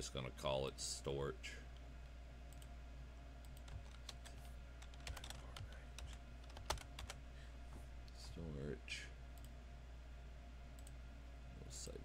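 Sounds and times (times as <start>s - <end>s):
low steady hum: 0.0s - 12.0s
keyboard keys clicking: 4.8s - 7.2s.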